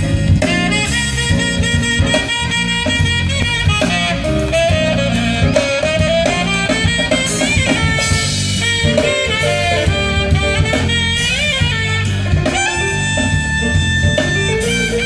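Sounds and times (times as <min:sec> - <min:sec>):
jazz band playing: 0:00.0 - 0:15.0
wind instrument solo: 0:00.0 - 0:15.0.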